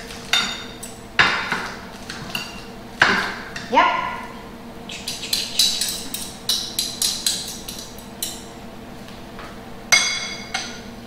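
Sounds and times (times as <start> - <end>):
metal utensil clinking against bowl: 5.1 - 8.4.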